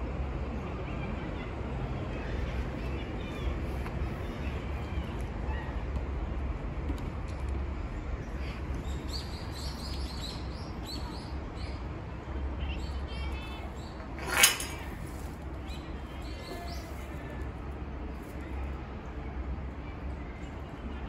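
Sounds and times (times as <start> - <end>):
small birds chirping: 8.2 - 11.9.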